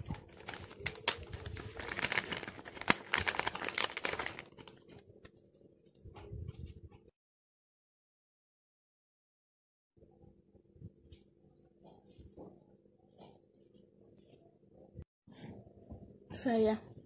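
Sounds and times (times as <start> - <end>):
packaging tearing and crinkling: 0.0 - 4.8.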